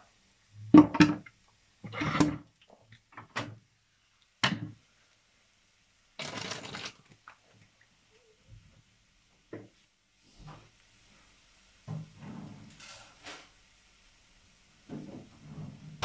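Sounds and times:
short hiss: 12.7 - 13.7.

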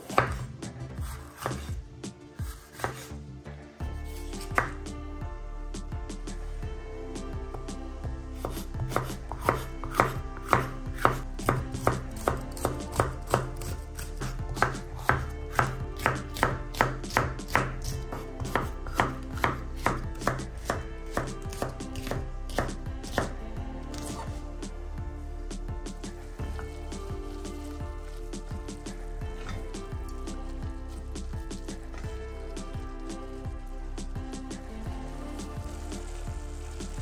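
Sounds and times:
knife chopping on board: 0.0 - 1.7, 2.4 - 3.1, 4.4 - 4.8, 8.4 - 23.3
background music: 0.0 - 37.0.

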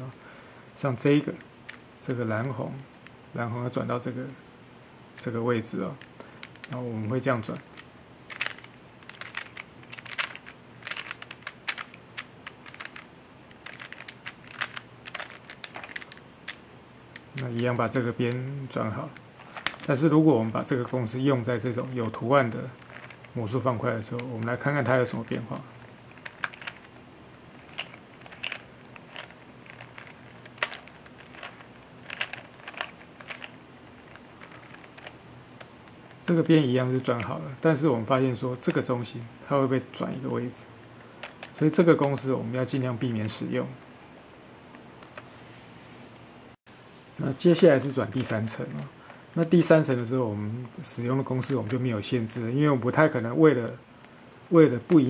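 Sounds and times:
plastic puzzle cube clicking: 7.5 - 17.7, 19.4 - 20.0, 22.8 - 23.4, 24.1 - 27.0, 27.6 - 36.3.

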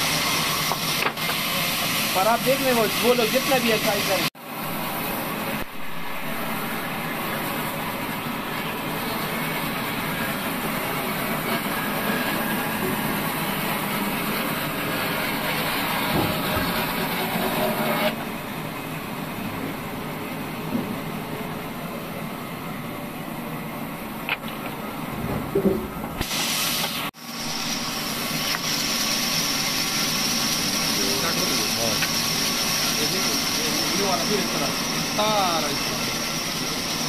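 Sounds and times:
band saw cutting wood: 0.0 - 18.3, 27.3 - 37.0.

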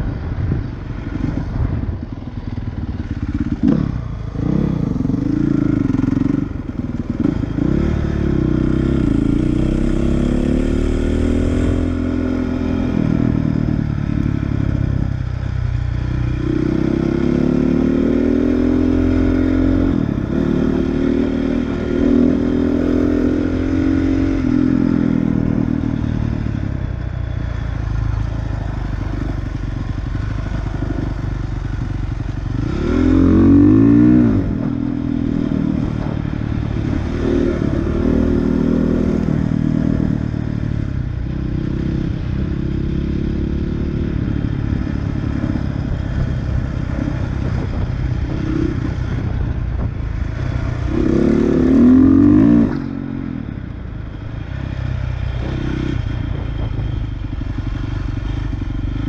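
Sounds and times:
dirt bike engine revving: 45.3 - 53.2.

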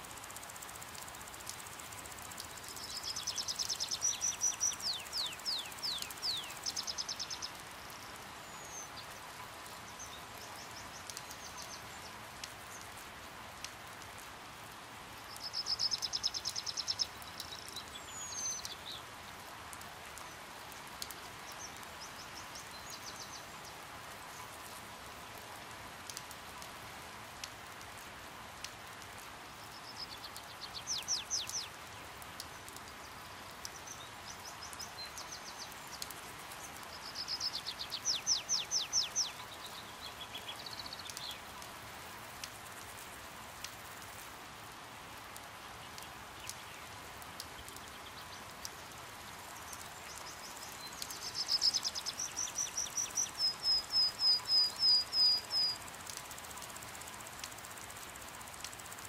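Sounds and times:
light rain hissing: 0.0 - 59.0
water drips: 0.0 - 59.0
small birds trilling: 2.3 - 7.7.

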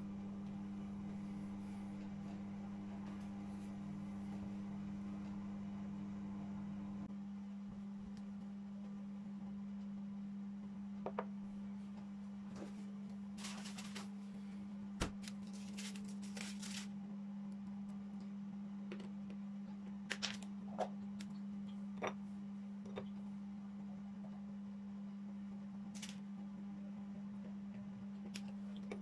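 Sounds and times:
steady low hum: 0.0 - 29.0
rustling: 13.4 - 14.2, 15.1 - 16.9.

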